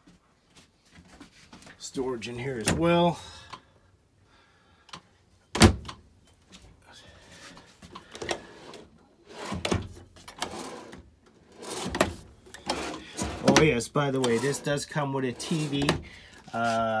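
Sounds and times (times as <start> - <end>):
drawer sliding: 8.2 - 16.8.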